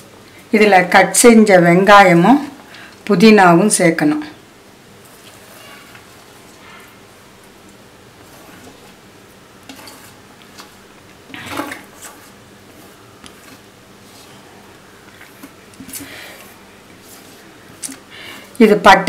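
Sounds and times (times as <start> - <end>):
hand mixing batter in steel bowl: 4.9 - 19.0
plate scraping and knocking on bowl: 9.7 - 12.4.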